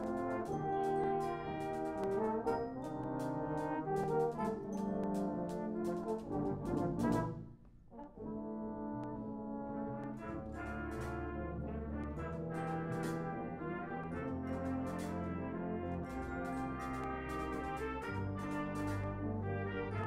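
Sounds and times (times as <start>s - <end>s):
percussion strikes: 0.0s - 7.4s, 12.4s - 13.4s, 16.1s - 19.2s
brass band playing: 0.0s - 20.0s.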